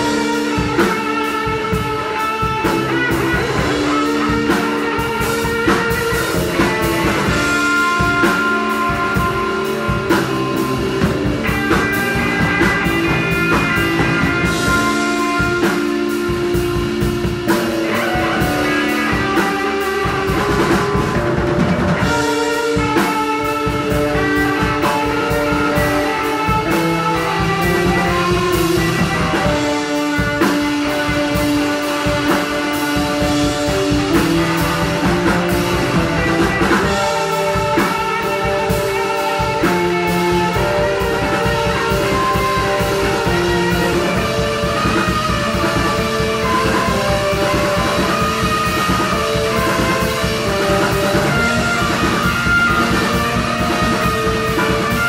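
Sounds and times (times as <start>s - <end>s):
drum kit drumming: 0.0s - 55.0s
electric bass: 0.0s - 55.0s
electric guitar: 0.0s - 55.0s.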